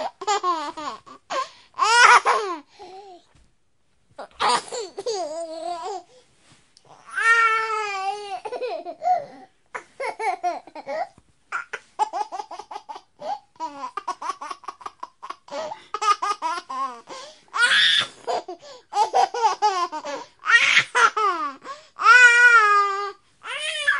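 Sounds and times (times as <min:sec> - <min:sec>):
baby laughing: 0:00.0 - 0:02.6, 0:04.2 - 0:06.0, 0:08.0 - 0:22.1.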